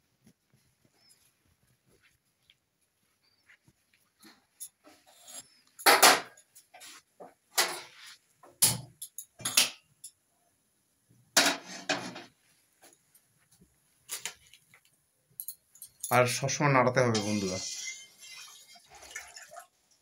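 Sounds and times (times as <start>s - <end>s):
pan and utensils clattering: 4.8s - 6.8s, 7.5s - 8.0s, 8.6s - 9.8s, 11.4s - 12.4s, 17.0s - 19.7s.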